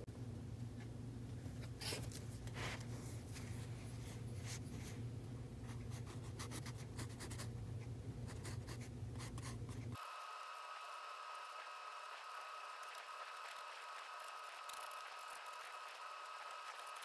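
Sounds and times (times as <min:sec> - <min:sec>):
low steady hum: 0:00.0 - 0:17.0
pencil scratching on paper: 0:11.4 - 0:17.0.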